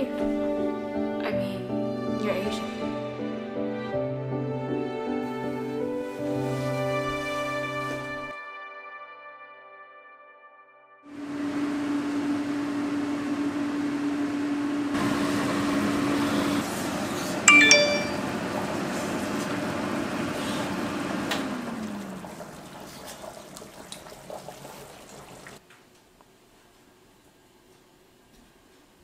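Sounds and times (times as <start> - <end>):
range hood fan humming: 11.2 - 29.0.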